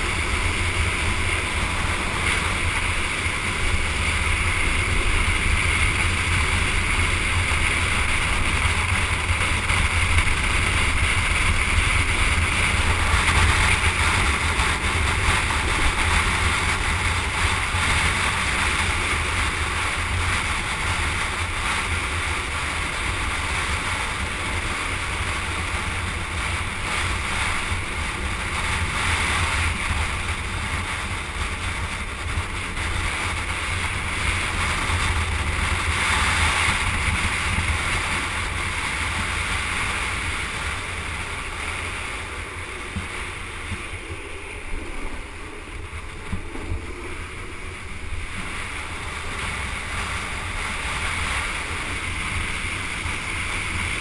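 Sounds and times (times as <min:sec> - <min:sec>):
wheels rolling on asphalt: 0:00.0 - 0:54.0
wind buffeting microphone: 0:00.0 - 0:54.0.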